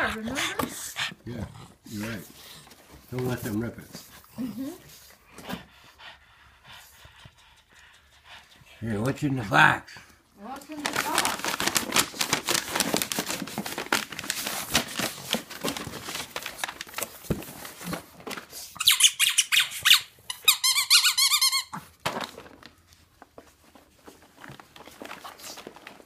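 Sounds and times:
paper and cardboard rustling: 1.9 - 4.2, 10.5 - 18.8, 21.9 - 26.0
squeaky dog toy: 18.8 - 21.9.

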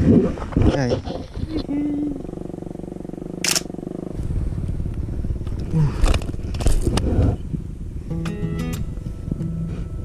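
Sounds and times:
wind rumbling on microphone: 0.0 - 8.1, 8.8 - 10.0
steady low buzz: 1.5 - 6.6, 7.3 - 10.0
camera handling noise: 3.4 - 3.7.

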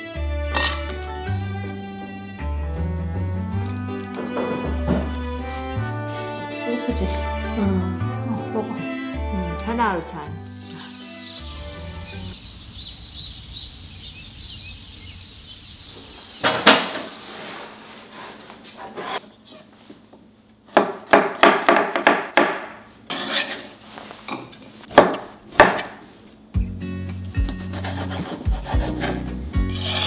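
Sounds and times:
birds chirping: 10.3 - 18.0
knife chopping on wooden board: 20.7 - 22.7, 24.9 - 26.0.

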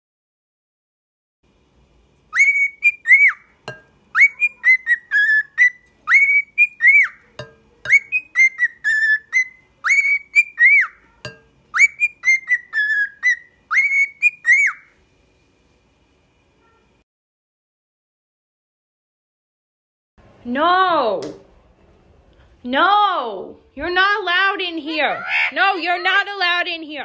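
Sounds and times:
cockatiel whistling: 2.3 - 3.5, 4.1 - 7.2, 7.9 - 11.0, 11.7 - 14.9.

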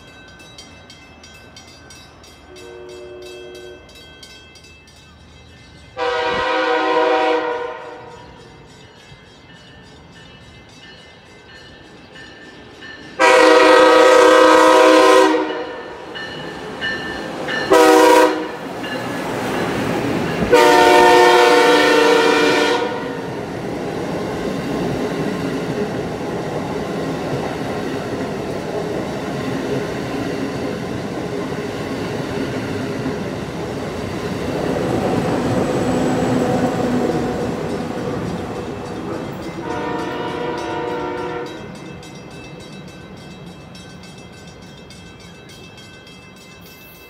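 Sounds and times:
train rolling past at speed: 0.0 - 47.0
train horn blasts: 2.5 - 4.0, 6.0 - 8.4, 13.2 - 16.0, 17.7 - 18.6, 20.4 - 23.3, 39.1 - 41.8.

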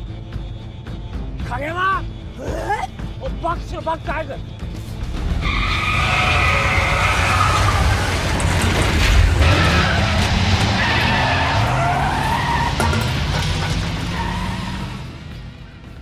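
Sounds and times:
tyres squealing: 5.4 - 15.1
car engine revving hard: 5.8 - 15.2.

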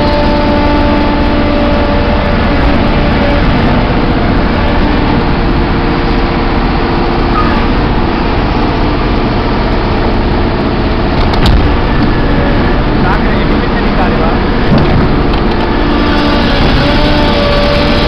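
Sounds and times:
diesel engine running: 0.0 - 18.0.

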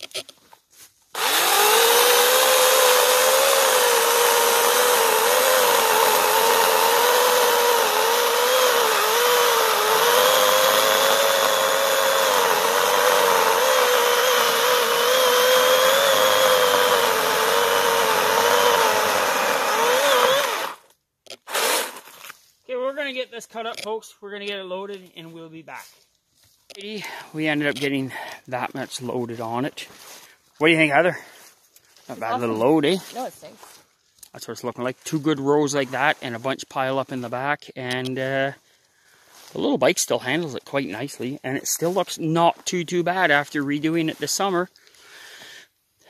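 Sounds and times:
electric chainsaw cutting log: 1.1 - 22.1.

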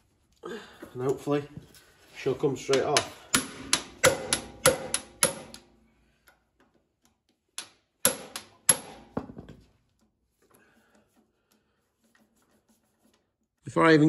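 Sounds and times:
hammer striking impact driver: 2.7 - 5.7, 7.6 - 9.4.

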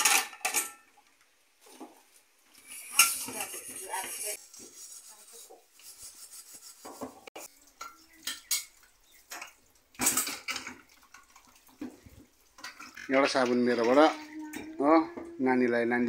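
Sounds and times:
metal pots clinking and scraping: 0.0 - 15.4.

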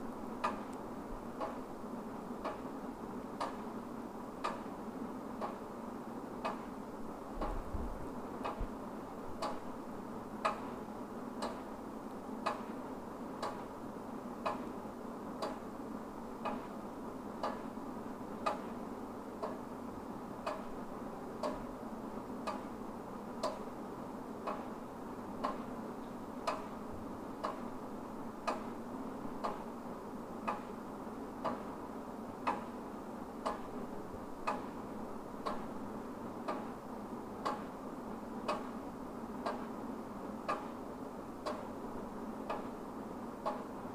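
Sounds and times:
low steady hiss: 0.0 - 43.9
wall clock ticking: 1.4 - 1.6, 2.4 - 2.7, 3.4 - 3.7, 4.4 - 4.7, 5.4 - 5.7, 6.4 - 6.7, 7.4 - 7.6, 9.4 - 9.7, 10.4 - 10.8, 11.4 - 11.7, 12.4 - 12.8, 13.4 - 13.7, 14.4 - 14.7, 15.4 - 15.7, 16.4 - 16.7, 17.4 - 17.8, 18.4 - 18.8, 19.4 - 19.7, 20.4 - 20.8, 21.4 - 21.7, 22.4 - 22.8, 23.4 - 23.7, 24.4 - 24.8, 25.4 - 25.7, 26.4 - 26.8, 27.4 - 27.7, 28.4 - 28.8, 29.4 - 29.8, 30.4 - 30.8, 31.4 - 31.8, 32.4 - 32.8, 33.4 - 35.8, 36.4 - 36.8, 37.4 - 37.8, 38.4 - 40.8, 41.4 - 41.8, 42.4 - 43.8.

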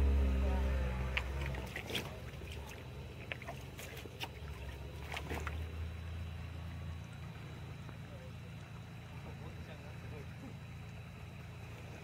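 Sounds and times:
small splashes in water: 1.0 - 6.1.

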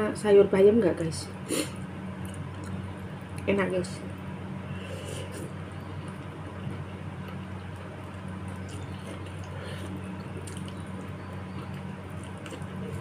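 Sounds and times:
steady low hum: 0.0 - 13.0
chewing: 5.1 - 13.0.

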